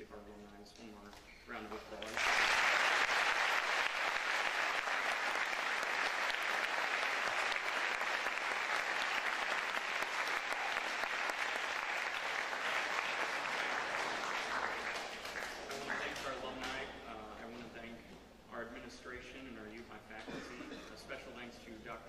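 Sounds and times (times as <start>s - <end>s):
audience applauding: 2.0s - 16.6s.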